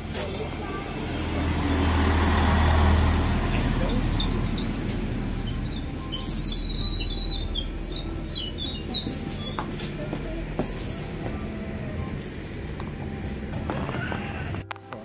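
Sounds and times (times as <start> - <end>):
train running hum: 0.0 - 14.7
short squeal: 3.7 - 9.7.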